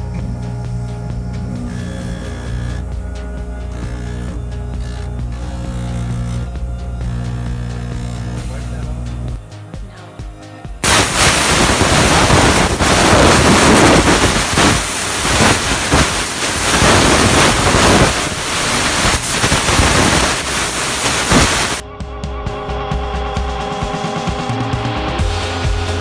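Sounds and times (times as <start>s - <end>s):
steam cleaner hissing: 10.8s - 21.8s.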